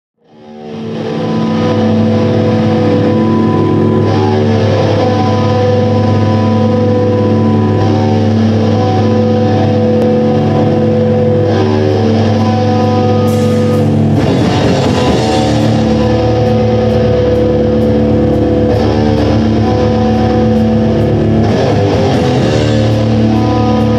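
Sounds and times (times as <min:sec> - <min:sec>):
amplified guitar chords: 0:00.2 - 0:23.9
drums and cymbals: 0:11.9 - 0:23.9.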